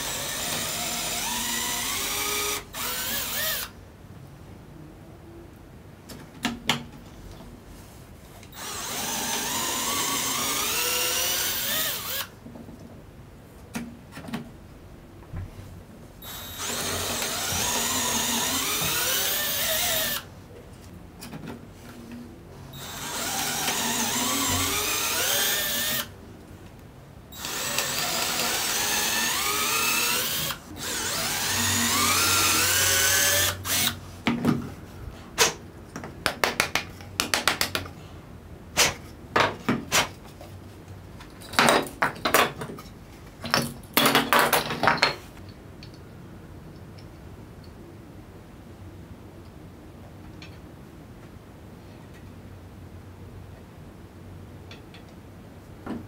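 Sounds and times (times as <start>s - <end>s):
electric drill boring wood: 0.0s - 3.7s, 8.6s - 12.3s, 16.2s - 20.2s, 22.8s - 26.1s, 27.4s - 33.9s.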